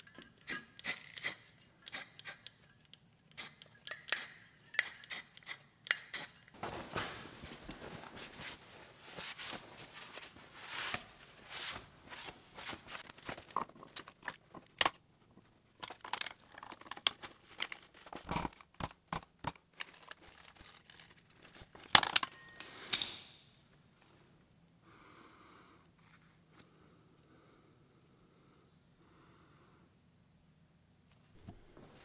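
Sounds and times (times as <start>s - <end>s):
paper towel rustling: 6.6s - 13.4s.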